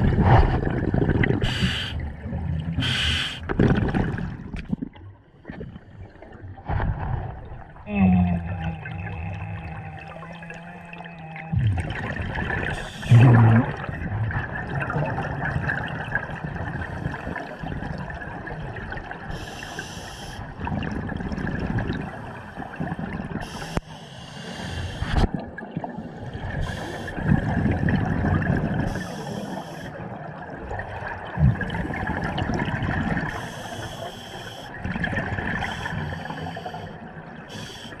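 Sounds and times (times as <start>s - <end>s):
bubbling exhalations: 0.0s - 5.0s, 7.8s - 16.0s
diver breathing through regulator: 1.4s - 2.0s, 2.8s - 3.5s, 19.3s - 20.4s, 23.4s - 25.2s, 26.6s - 27.2s, 28.9s - 30.0s, 33.3s - 34.8s, 35.6s - 38.0s.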